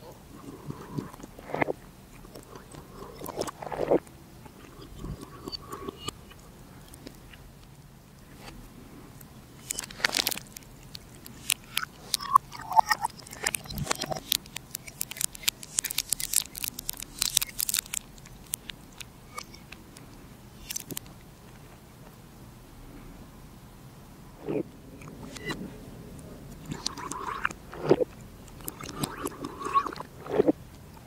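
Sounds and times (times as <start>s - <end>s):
liquid gurgle: 0.0s - 7.4s, 9.7s - 18.5s, 24.4s - 30.6s
sharp clicks and crackles: 9.6s - 21.2s, 25.0s - 25.6s, 26.5s - 31.0s
tea pouring: 9.7s - 18.6s, 26.6s - 30.5s.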